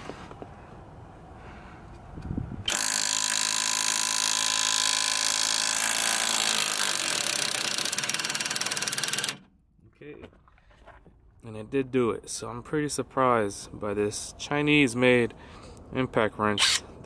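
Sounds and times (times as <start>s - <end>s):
impact wrench hammering on bolt: 2.7s - 9.4s.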